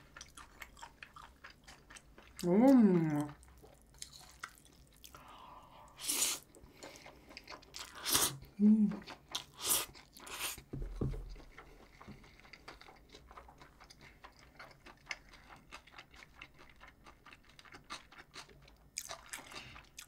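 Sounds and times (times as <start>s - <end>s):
person chewing food: 0.0s - 20.0s
low thump: 10.7s - 11.4s.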